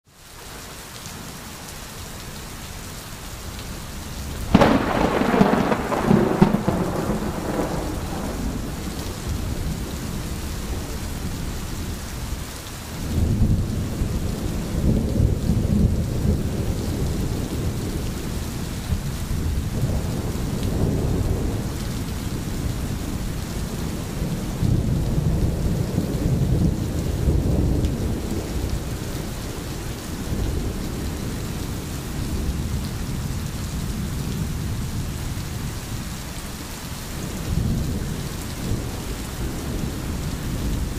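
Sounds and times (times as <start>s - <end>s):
steady rain: 0.0s - 40.9s
deep rumble of thunder: 4.4s - 12.4s, 13.0s - 36.0s, 37.2s - 40.9s
thunderclap crackling: 4.5s - 11.8s.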